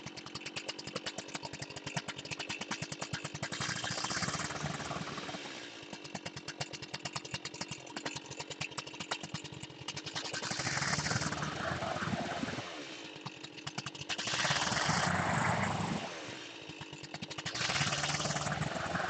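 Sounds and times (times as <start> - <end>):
chainsaw cutting wooden plank: 0.0 - 19.0
chainsaw idling and revving: 0.0 - 19.0.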